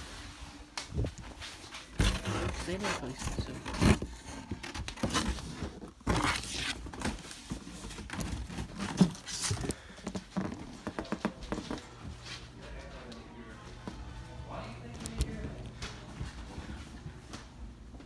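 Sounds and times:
footsteps walking about: 6.8 - 18.0.

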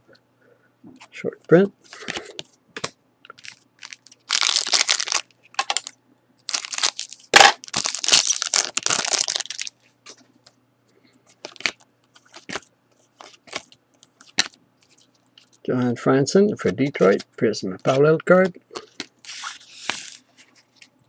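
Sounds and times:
foil pack tearing and crinkling: 3.4 - 5.9, 6.5 - 9.7.

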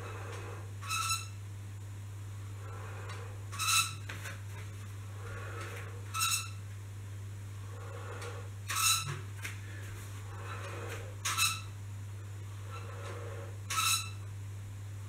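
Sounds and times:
spring exerciser squeaking: 0.0 - 1.4, 3.0 - 4.2, 5.6 - 6.6, 8.2 - 9.2, 10.4 - 11.8, 12.7 - 14.3
steady low hum: 0.0 - 15.0.

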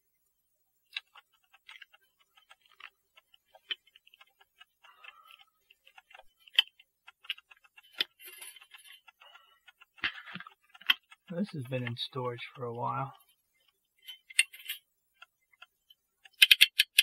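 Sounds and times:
faint metallic clicks and ticks: 0.8 - 17.0.

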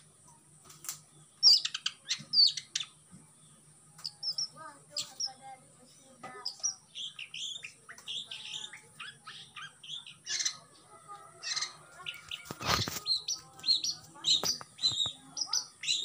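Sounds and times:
bird chirping and whistling: 1.4 - 2.9, 4.0 - 5.3, 6.4 - 10.6, 11.5 - 16.0
harsh rasping bird notes: 11.4 - 16.0.

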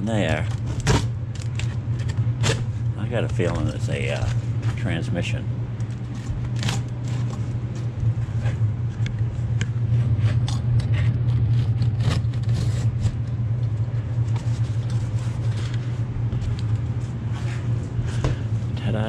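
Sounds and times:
steady low hum: 0.0 - 19.0
cardboard scraping and rustling: 9.9 - 13.3, 14.0 - 18.5
knife slicing packing tape: 11.3 - 13.2.

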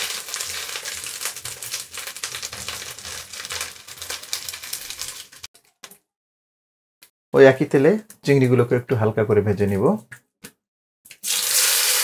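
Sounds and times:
chicken sizzling in hot oil: 0.0 - 5.5, 11.1 - 12.0.

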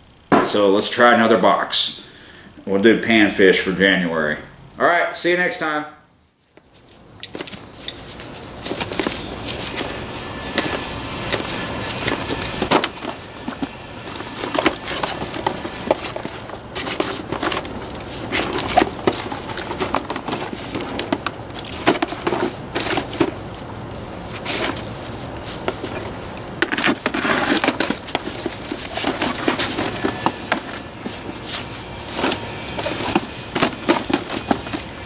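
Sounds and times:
dog tearing cardboard: 8.1 - 35.0.

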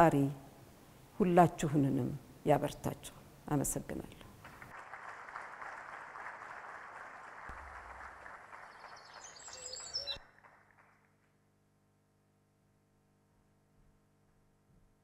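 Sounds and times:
audience applauding: 4.4 - 11.1.

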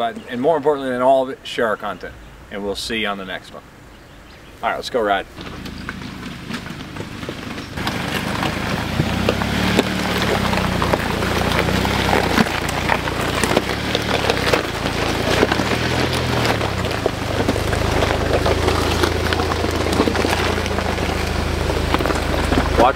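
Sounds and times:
tires crunching over stones: 0.0 - 22.9
low engine hum: 5.4 - 22.9.

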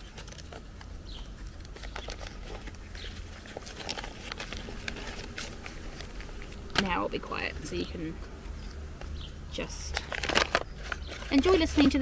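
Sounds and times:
paper packet crinkling: 0.0 - 7.4, 9.8 - 12.0
low rumble of breeze: 0.0 - 12.0.

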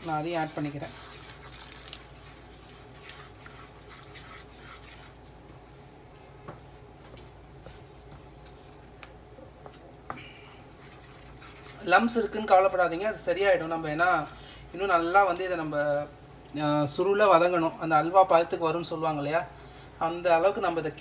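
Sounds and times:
wooden spatula scraping pan: 0.0 - 1.4.

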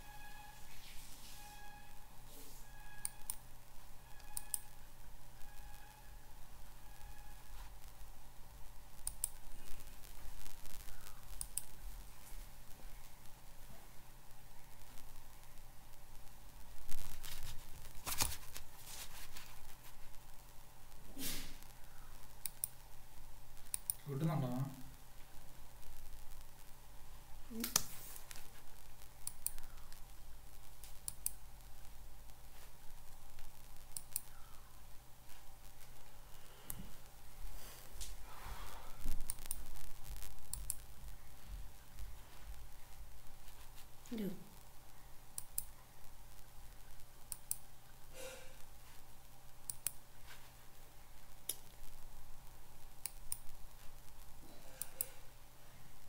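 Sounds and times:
low electrical hum: 0.0 - 56.0
computer mouse clicking: 2.9 - 3.4, 4.2 - 4.7, 9.0 - 9.4, 10.9 - 11.7, 22.4 - 22.8, 23.7 - 24.0, 29.2 - 29.9, 30.8 - 31.4, 33.9 - 34.6, 39.2 - 39.6, 40.5 - 40.9, 45.4 - 45.7, 47.3 - 47.7, 49.6 - 50.0
mouse button clicking: 4.2 - 4.7.

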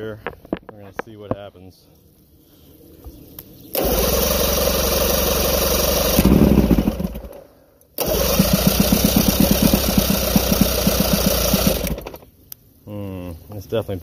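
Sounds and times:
electric starter cranking outboard: 3.7 - 7.4, 8.0 - 12.2
engine compression chugging: 8.0 - 12.2.

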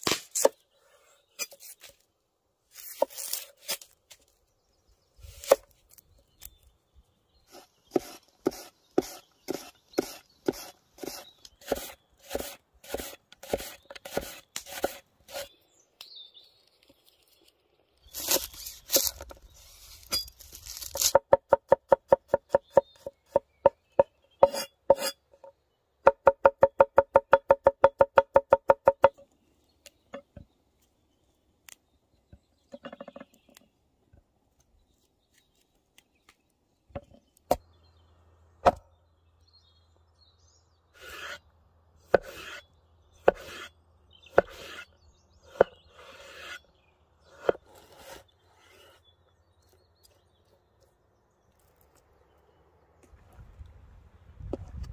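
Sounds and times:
knife slicing tomato: 7.5 - 15.5, 42.1 - 43.7, 44.3 - 44.9
cleaver chopping on wooden board: 26.1 - 29.2, 38.6 - 38.8, 42.1 - 42.6, 43.2 - 43.7, 44.3 - 44.8, 47.3 - 47.7.

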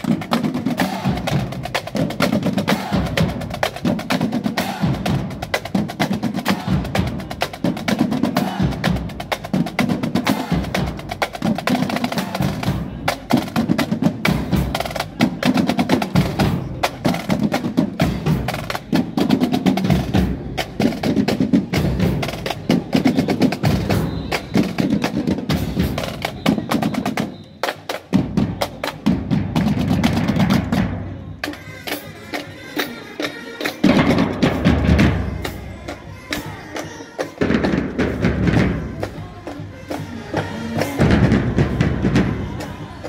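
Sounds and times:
cymbals: 0.0 - 29.7, 30.7 - 43.0
bass drums: 37.4 - 43.0.

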